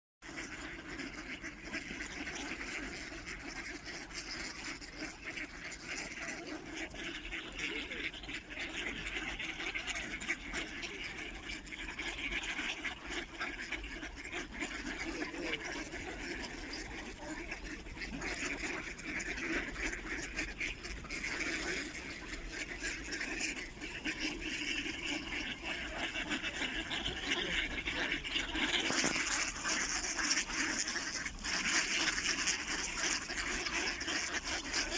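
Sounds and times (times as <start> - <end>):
ducks quacking: 0.2 - 34.9
water splashing: 19.9 - 34.9.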